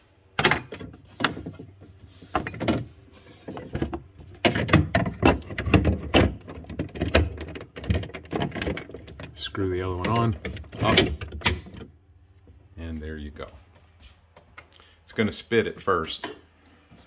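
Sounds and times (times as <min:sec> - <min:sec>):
low steady hum: 0:00.0 - 0:17.0
plastic knocks and clatter: 0:02.4 - 0:09.3.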